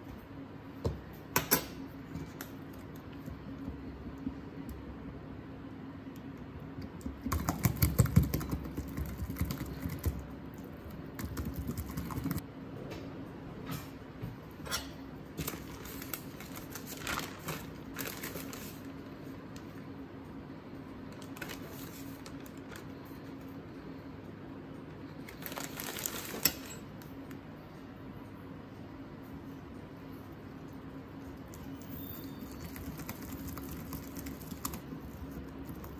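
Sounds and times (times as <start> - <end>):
plastic bag rustling: 15.4 - 19.1, 25.3 - 26.7.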